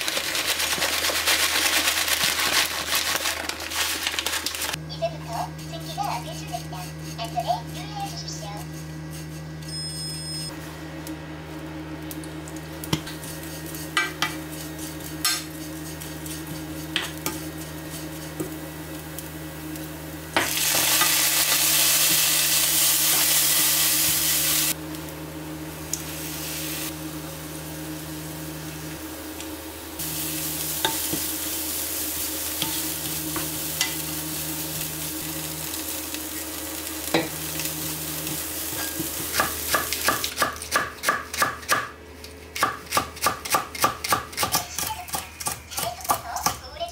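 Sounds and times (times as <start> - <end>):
food sizzling in a pan: 13.1 - 25.2, 25.9 - 40.3.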